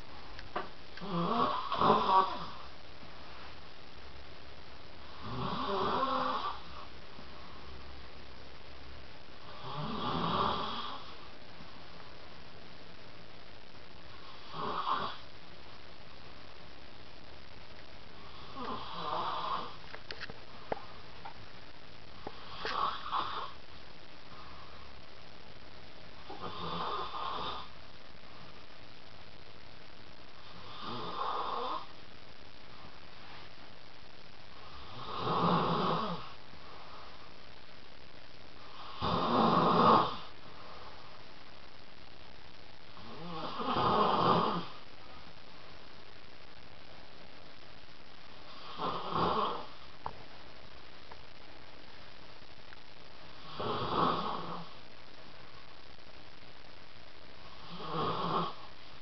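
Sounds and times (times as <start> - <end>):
steady background hiss: 0.0 - 59.0
person snoring: 1.0 - 2.7, 5.1 - 6.9, 9.5 - 11.2, 14.2 - 15.2, 18.2 - 19.8, 22.3 - 23.6, 26.3 - 27.7, 30.4 - 31.9, 34.6 - 36.4, 38.7 - 40.3, 43.0 - 44.8, 48.5 - 49.7, 53.4 - 54.8, 57.6 - 58.7.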